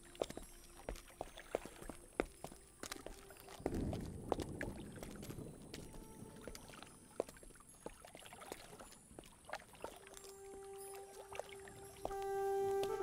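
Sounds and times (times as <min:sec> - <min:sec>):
steady low musical note: 0:10.5 - 0:13.0.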